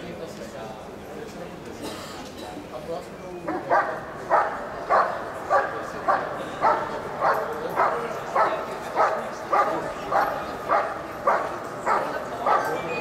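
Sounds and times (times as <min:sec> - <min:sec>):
dog barking: 0:03.5 - 0:13.0.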